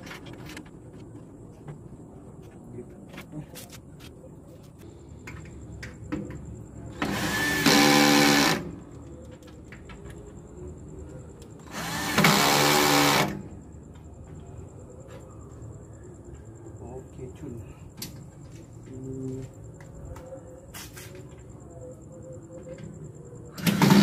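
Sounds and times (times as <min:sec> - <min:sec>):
power drill driving screws: 0:07.0 - 0:08.7, 0:11.7 - 0:13.4, 0:23.6 - 0:24.0.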